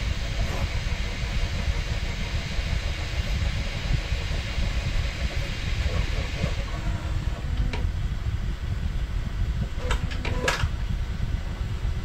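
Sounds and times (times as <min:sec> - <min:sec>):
faint motor tones: 0:00.0 - 0:12.0
printer fan rushing: 0:00.0 - 0:12.0
printer clicks: 0:09.8 - 0:10.7.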